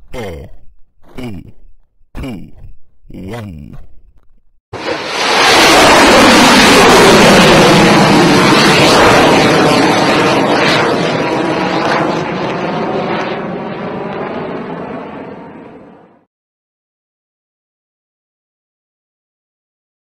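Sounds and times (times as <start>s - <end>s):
rocket launch roar: 4.8s - 14.8s.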